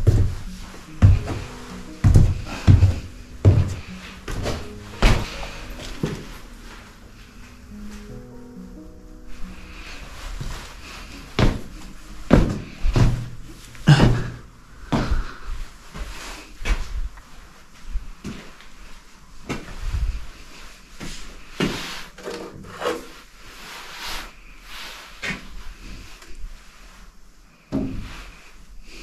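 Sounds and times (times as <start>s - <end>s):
footsteps on concrete floor: 0.0s - 8.2s, 10.2s - 17.1s.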